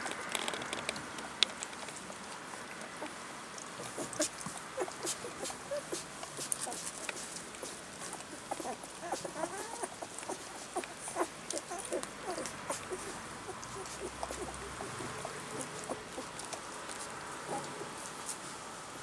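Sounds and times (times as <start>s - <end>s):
puppies squeaking and whining: 3.8s - 7.0s, 7.6s - 18.0s.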